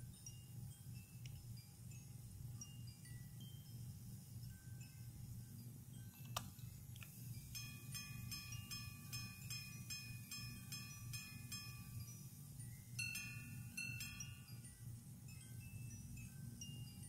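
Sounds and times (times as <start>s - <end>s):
watch repeater striking: 7.6s - 12.0s.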